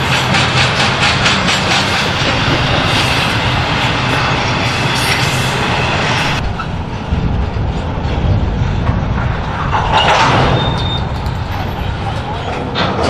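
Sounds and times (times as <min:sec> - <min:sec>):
low dull train rumble: 0:00.0 - 0:13.0
wheels clacking over rail joints: 0:00.0 - 0:13.0.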